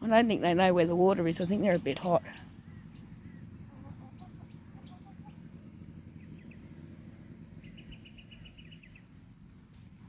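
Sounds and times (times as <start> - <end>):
low steady rumble: 0.0 - 10.0
small bird chirping: 1.3 - 9.3
hens clucking softly: 3.3 - 5.5.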